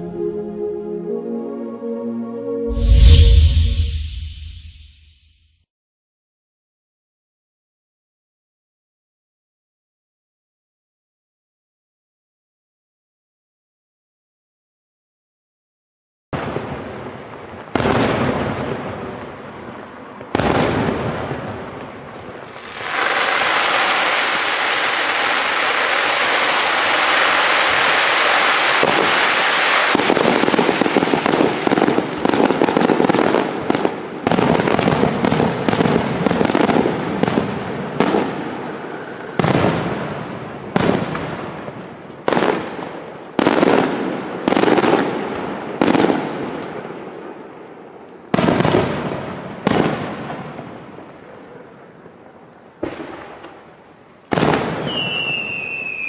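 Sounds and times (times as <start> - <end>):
firework bangs: 16.4 - 19.4, 20.2 - 46.6, 48.3 - 50.9, 54.3 - 56.0
heavy firework booms: 34.3 - 42.7, 54.3 - 55.3.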